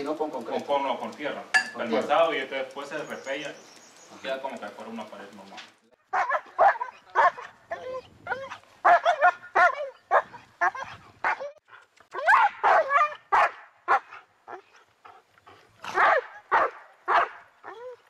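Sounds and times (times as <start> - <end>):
animal yelping: 6.1 - 13.3.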